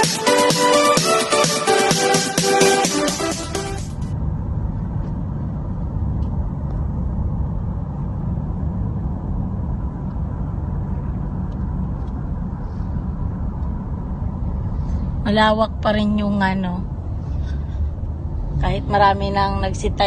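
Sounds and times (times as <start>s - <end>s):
electronic music: 0.0s - 4.1s
road and engine rumble in car: 3.4s - 20.0s.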